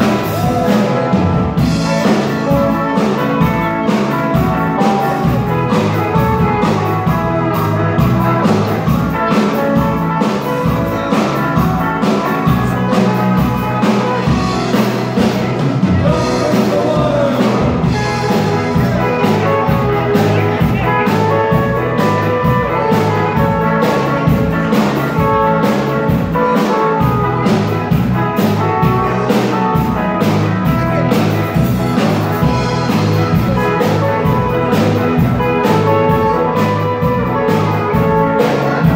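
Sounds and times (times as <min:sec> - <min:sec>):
bass guitar: 0:00.0 - 0:38.9
drum kit beat: 0:00.0 - 0:38.9
electric guitars: 0:00.0 - 0:38.9.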